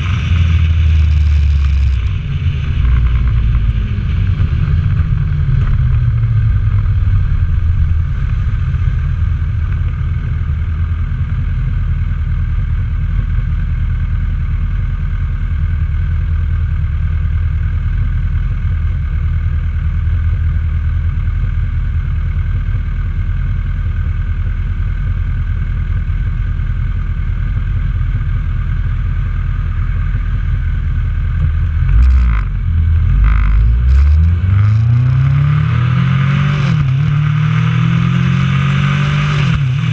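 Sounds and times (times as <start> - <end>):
motorcycle engine idling: 0.0 - 31.8.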